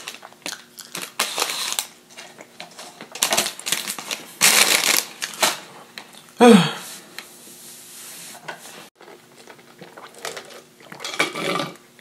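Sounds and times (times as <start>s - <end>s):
paper wrapper rustling: 0.9s - 5.6s.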